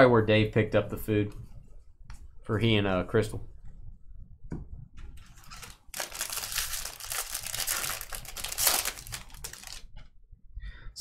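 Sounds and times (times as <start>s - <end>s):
foil wrapper crinkling and tearing: 5.3s - 9.9s.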